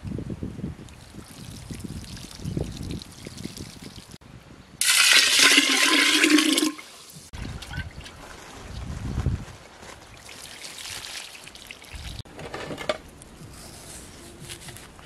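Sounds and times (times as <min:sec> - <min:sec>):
water splashing on hands and ground: 0:00.9 - 0:04.2, 0:10.0 - 0:12.3
water pouring into a pot: 0:04.8 - 0:07.0.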